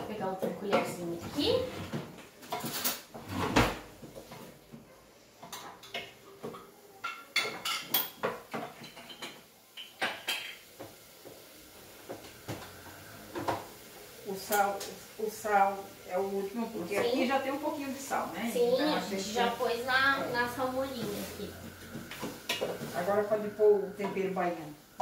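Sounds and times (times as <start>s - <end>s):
cutlery clinking: 2.4s - 3.1s, 5.4s - 10.7s.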